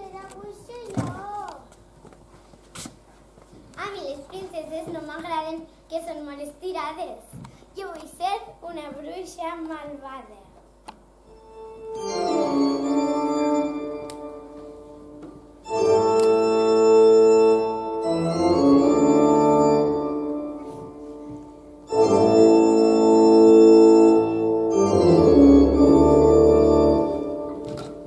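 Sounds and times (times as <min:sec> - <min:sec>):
organ-like sustained chords: 0:11.2 - 0:28.0.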